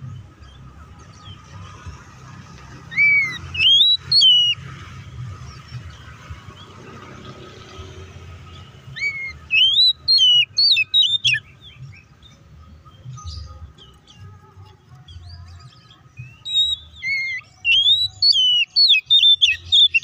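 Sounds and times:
bird whistling song: 0:02.8 - 0:04.8, 0:08.5 - 0:20.0
bird chattering notes: 0:02.9 - 0:04.6, 0:08.9 - 0:11.5, 0:16.4 - 0:20.0.

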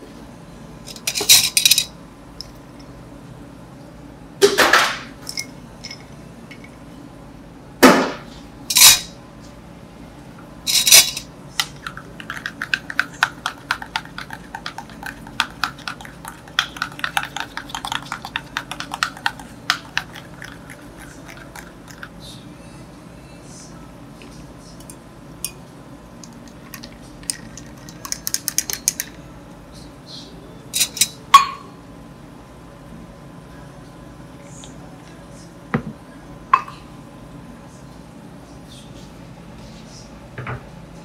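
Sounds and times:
utensils clattering and scraping: 0:00.9 - 0:01.9, 0:08.7 - 0:09.1, 0:10.7 - 0:22.1, 0:30.8 - 0:31.2.

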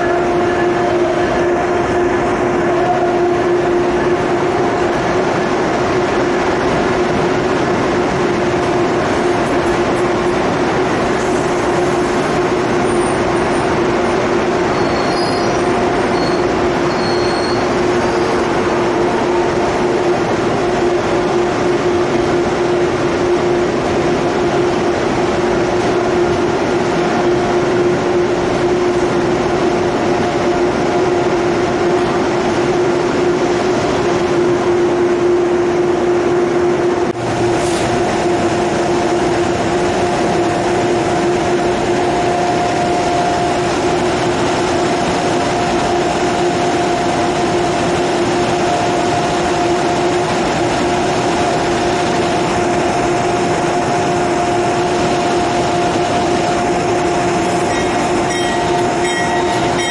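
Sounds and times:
train wheels rumbling on rail: 0:00.0 - 0:59.9
constant droning tone: 0:38.2 - 0:59.9.

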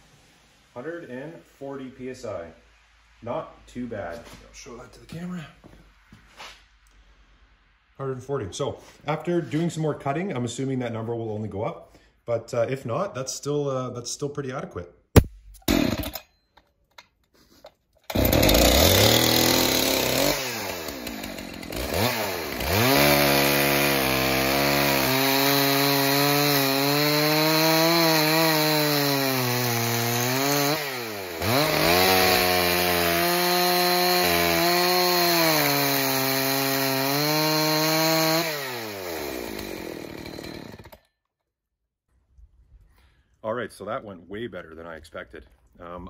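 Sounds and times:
chainsaw cutting wood: 0:15.6 - 0:16.2, 0:18.0 - 0:41.1.

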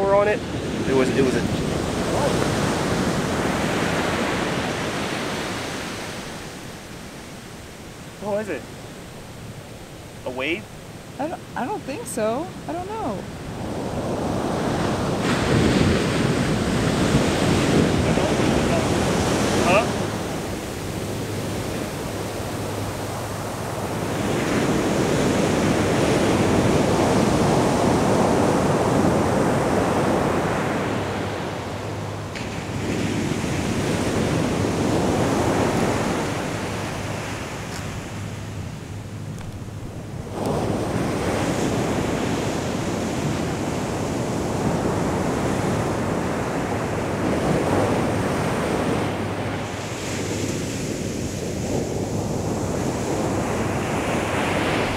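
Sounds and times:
surf breaking on beach: 0:00.0 - 0:54.9.

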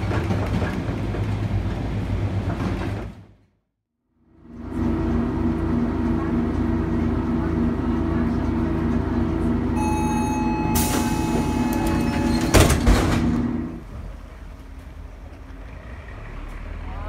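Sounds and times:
warning tone: 0:09.7 - 0:12.8
door shutting with bangs: 0:10.7 - 0:13.6.

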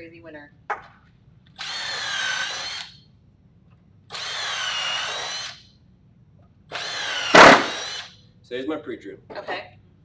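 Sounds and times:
cordless drill boring into wood: 0:01.6 - 0:03.0, 0:04.1 - 0:05.7, 0:06.7 - 0:08.2.

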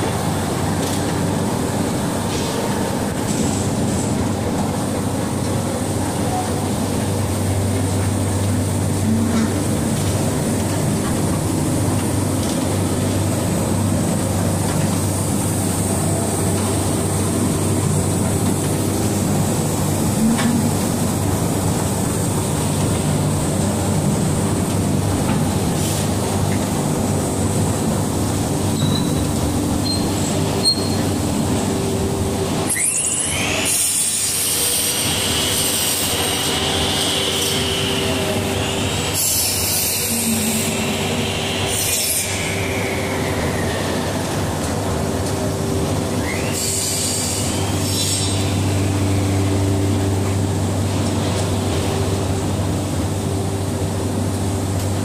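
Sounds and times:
production line machinery droning: 0:00.0 - 0:55.0
high squeal with sweeping pitch: 0:32.7 - 0:34.2.

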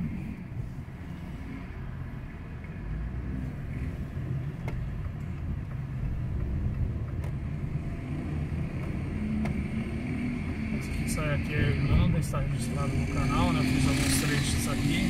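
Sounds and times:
car engine and road rumble: 0:00.0 - 0:15.0.

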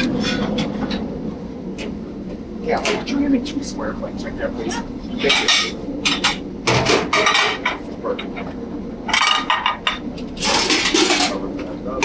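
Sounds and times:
plates pans and utensils clinking: 0:05.2 - 0:08.4, 0:09.1 - 0:11.5
loud bursts of kitchen clatter: 0:09.1 - 0:11.4.

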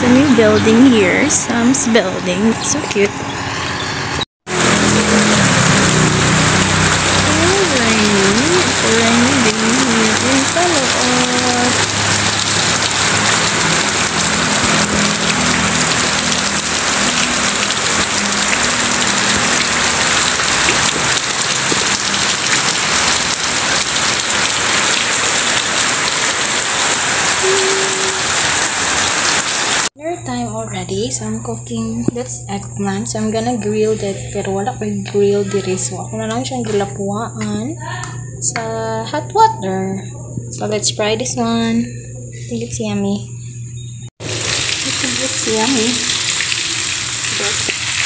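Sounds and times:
heavy rain: 0:04.5 - 0:29.9, 0:44.2 - 0:48.0.

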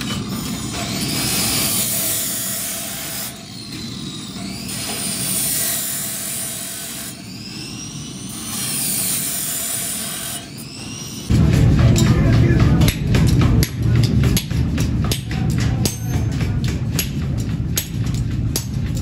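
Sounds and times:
chop saw grinding through steel: 0:00.0 - 0:11.3.

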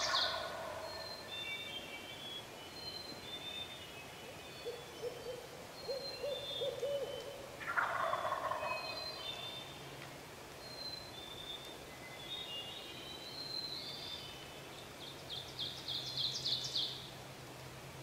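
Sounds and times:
turkey gobbling: 0:00.0 - 0:00.9, 0:06.2 - 0:09.0
songbirds singing: 0:00.0 - 0:18.0
owl hooting: 0:04.6 - 0:08.9.

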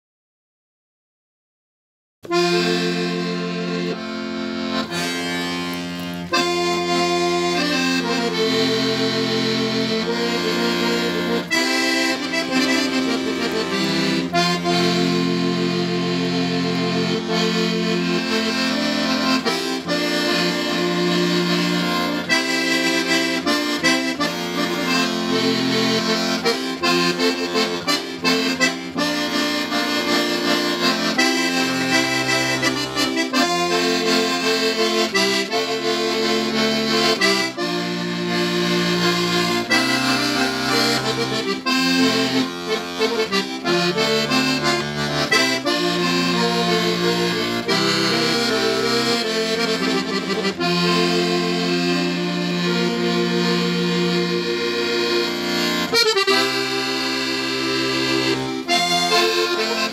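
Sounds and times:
folk dance tune on accordion: 0:02.2 - 0:59.9.

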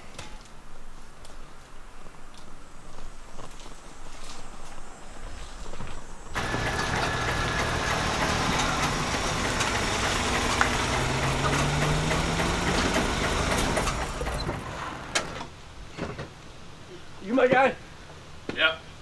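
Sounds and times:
car engine rough noise: 0:06.4 - 0:15.6.

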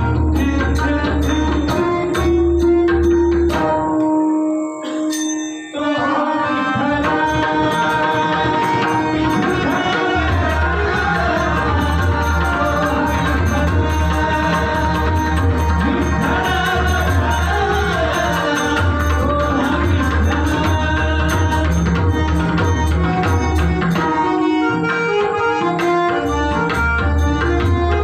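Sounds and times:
person singing: 0:00.0 - 0:24.1
harmonium holding notes: 0:00.0 - 0:28.0
hand drums playing: 0:07.1 - 0:28.0.

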